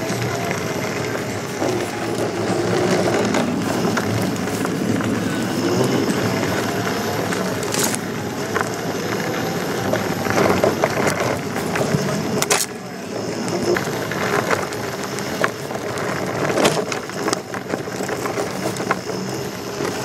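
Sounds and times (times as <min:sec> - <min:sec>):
faint motor whine: 0:00.0 - 0:20.0
tyre and trail noise: 0:00.0 - 0:20.0.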